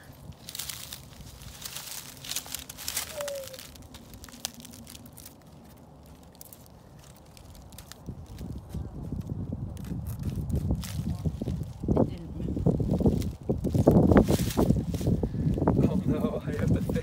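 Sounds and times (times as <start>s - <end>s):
dry leaves and twigs crackling: 0.0s - 17.0s.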